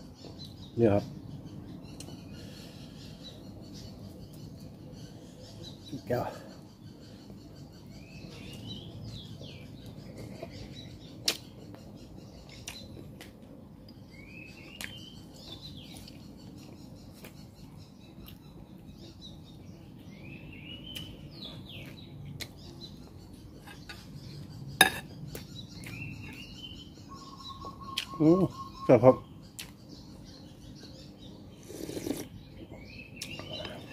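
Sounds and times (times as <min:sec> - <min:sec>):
person chewing: 0:31.6 - 0:32.3.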